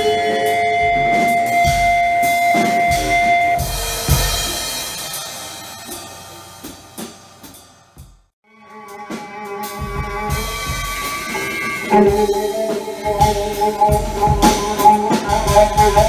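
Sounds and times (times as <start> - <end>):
cymbal-like percussion hits: 0.0 - 8.3, 8.9 - 16.0
held steady tones: 8.8 - 16.0.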